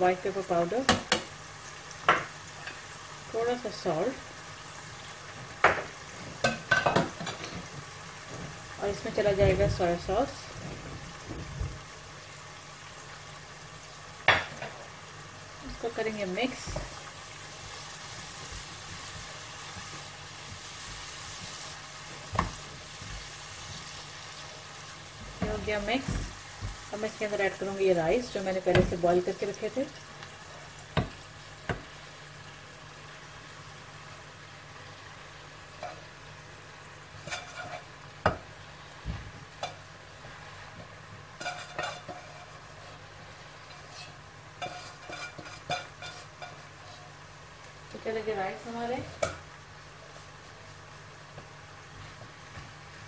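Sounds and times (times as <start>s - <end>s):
food sizzling in hot oil: 0.0s - 53.0s
spatula stirring in pan: 15.7s - 27.7s, 37.1s - 38.6s, 39.5s - 47.3s
spatula knocking against pan: 30.9s - 31.9s.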